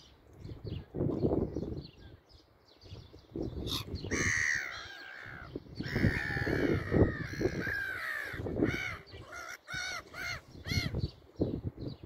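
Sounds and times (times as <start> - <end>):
gulls calling: 3.6 - 11.1.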